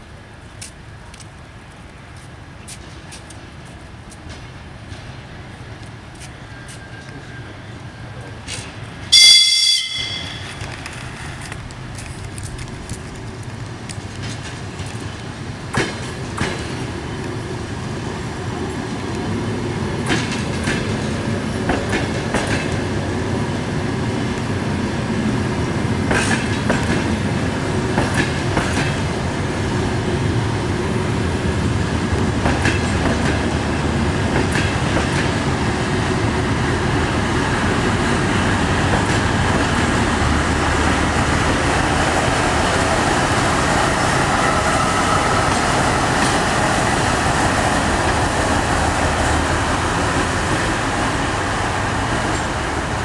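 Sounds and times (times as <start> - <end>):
train wheels rumbling on rails: 0.0 - 53.0
wheels clicking over rail joints: 9.9 - 24.6, 25.8 - 29.5, 31.5 - 53.0.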